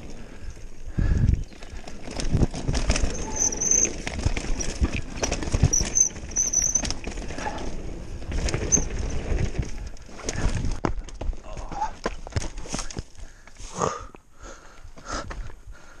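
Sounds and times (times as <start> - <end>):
bike rattling and knocking: 0.0 - 13.6
bike tyres rumbling on dirt: 0.0 - 16.0
short high squeaks: 3.0 - 4.8, 5.5 - 7.0.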